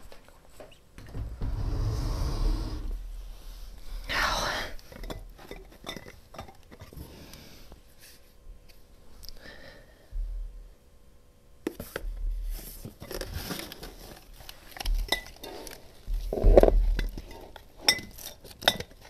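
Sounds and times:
low bumps on table: 1.0 - 3.0.

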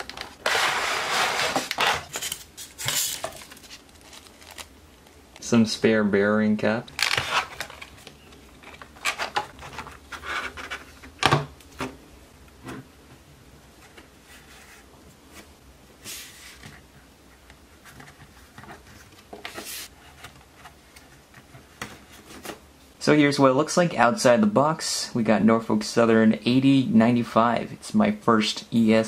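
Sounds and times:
plastic rustling: 0.0 - 5.5.

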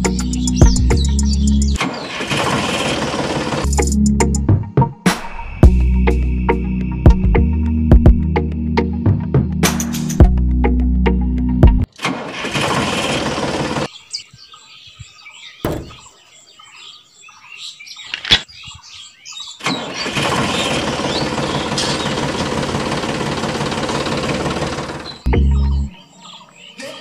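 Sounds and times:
birds chirping: 0.0 - 2.1, 13.6 - 23.3, 23.9 - 27.0
tractor engine running: 0.0 - 4.0, 12.2 - 13.9, 19.7 - 25.8.

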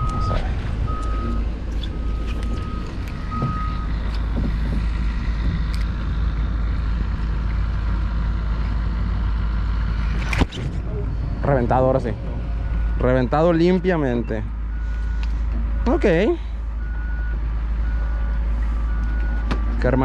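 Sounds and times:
vehicle reversing alarm beeping: 0.0 - 4.7, 10.8 - 20.0
steady low rumble: 0.0 - 20.0.

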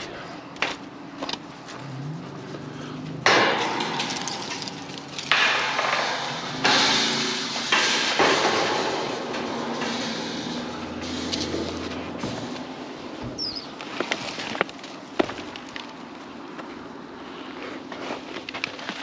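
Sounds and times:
metal fence panels clanking and rattling: 2.3 - 16.4
sharp metal bangs: 3.2 - 13.8.

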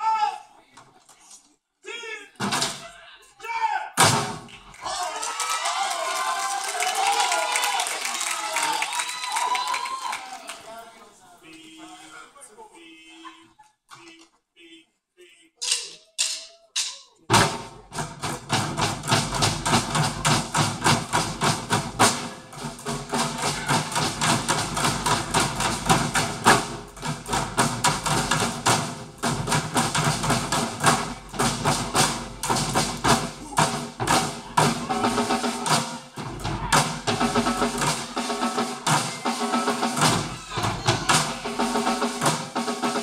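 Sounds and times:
drumsticks beating buckets and drums: 2.4 - 3.0, 4.0 - 5.0, 15.6 - 43.0.

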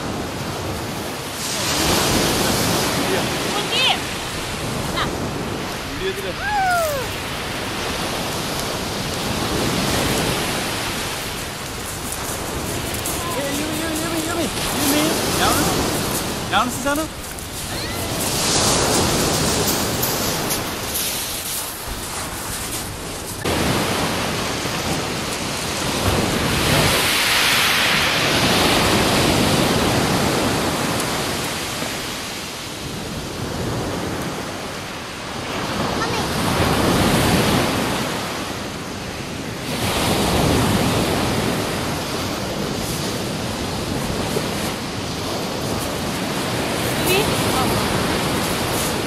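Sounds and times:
surf breaking on shingle: 7.1 - 29.6.

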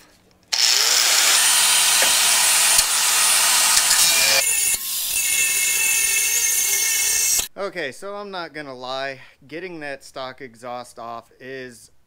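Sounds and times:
angle grinder cutting steel: 0.5 - 7.5.

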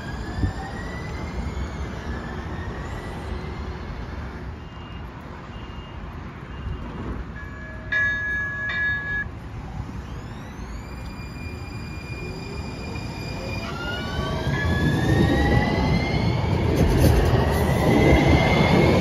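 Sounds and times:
short high beeps: 7.4 - 9.3.

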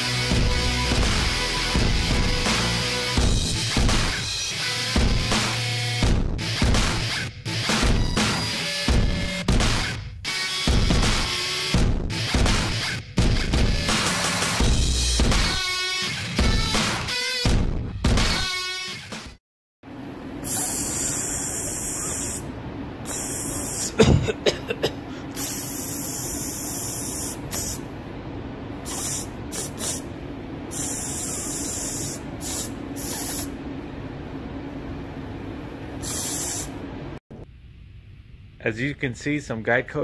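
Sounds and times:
steady low hum: 19.9 - 39.9
aerosol can spraying: 20.5 - 22.4, 23.1 - 24.0, 25.4 - 27.8, 28.8 - 30.1, 30.7 - 33.5, 36.0 - 36.8.

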